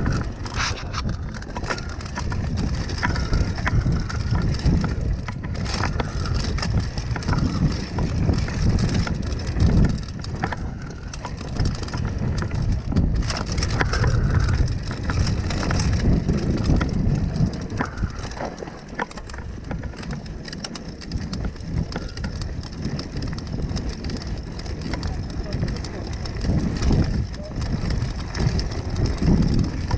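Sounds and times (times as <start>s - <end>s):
bike rattling clicks and knocks: 0.0s - 29.9s
bike tyres crunching on gravel: 0.0s - 29.9s.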